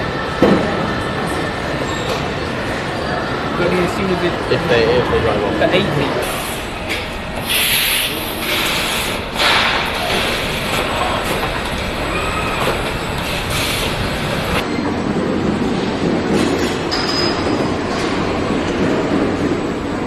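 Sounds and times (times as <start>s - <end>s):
machinery rumble and clatter: 0.0s - 20.0s
hissing clanks: 6.2s - 11.9s.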